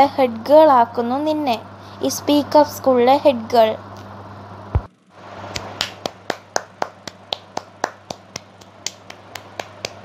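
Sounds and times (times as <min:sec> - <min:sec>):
low steady hum: 0:00.0 - 0:10.0
person clapping: 0:05.5 - 0:10.0.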